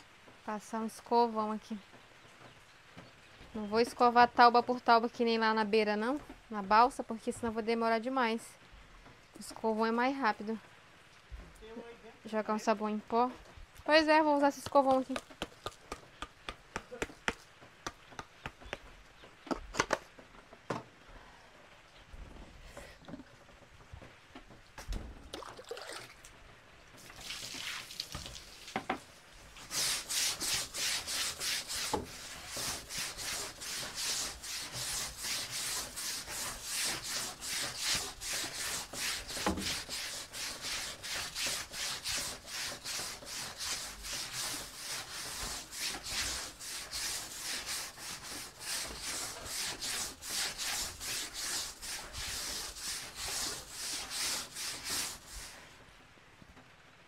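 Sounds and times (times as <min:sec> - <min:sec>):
brush scrubbing wet wooden floor: 0:29.4 - 0:55.8.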